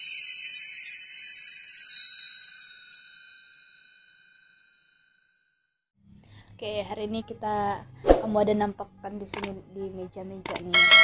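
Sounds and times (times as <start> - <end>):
high ringing chime: 0.0 - 5.8.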